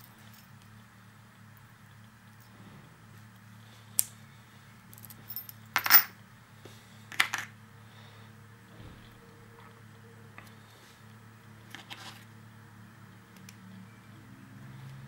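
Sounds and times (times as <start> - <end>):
faint low hum: 0.0 - 15.0
metal tools clinking on padlock: 4.9 - 6.2.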